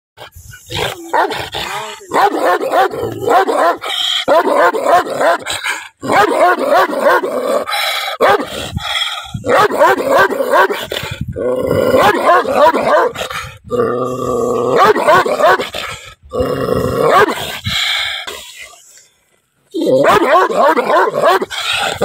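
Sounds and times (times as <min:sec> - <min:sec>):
dog barking angrily: 0:00.8 - 0:08.6, 0:09.4 - 0:11.2, 0:11.9 - 0:13.2, 0:14.7 - 0:16.0, 0:17.0 - 0:17.6, 0:19.9 - 0:22.0.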